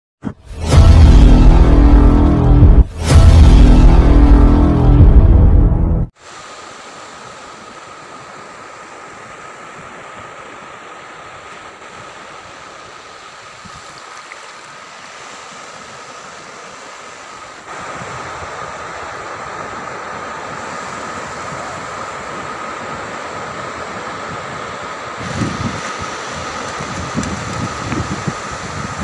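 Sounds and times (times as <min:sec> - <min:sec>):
music: 0:00.2 - 0:06.1
sea surf breaking on beach: 0:06.1 - 0:29.0
wind on microphone: 0:17.7 - 0:29.0.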